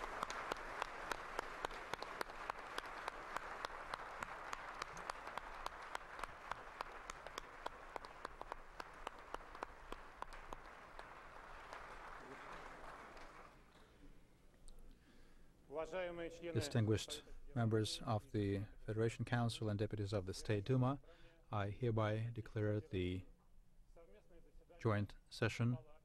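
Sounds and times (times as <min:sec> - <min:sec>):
audience applauding: 0:00.0 - 0:13.7
sharp individual claps: 0:00.0 - 0:13.7.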